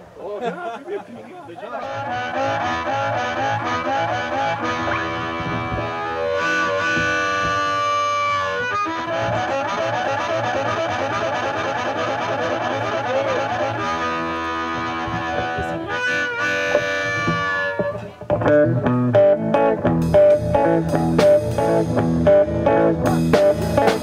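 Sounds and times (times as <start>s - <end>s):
drums: 1.7s - 24.0s
electric guitar riff: 1.7s - 24.0s
harmonica solo: 1.8s - 18.2s
bass guitar: 1.8s - 24.0s.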